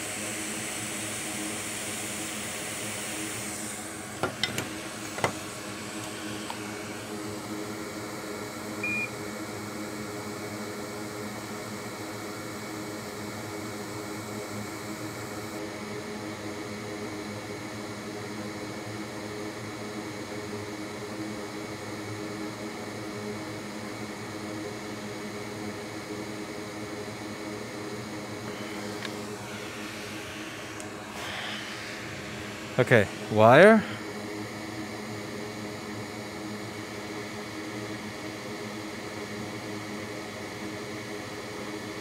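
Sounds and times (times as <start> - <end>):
equipment whirring hum: 0.0 - 15.8, 25.2 - 42.0.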